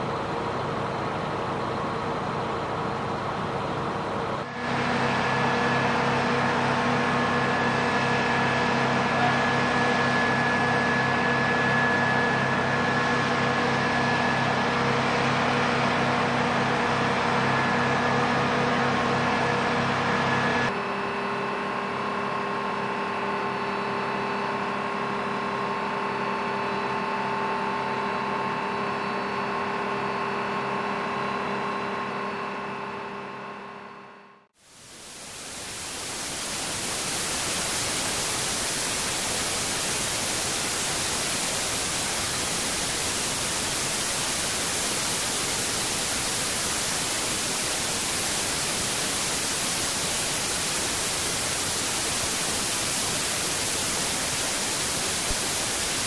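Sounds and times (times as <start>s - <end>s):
steady machine hum: 0.0s - 56.0s
steady static hiss: 34.6s - 56.0s.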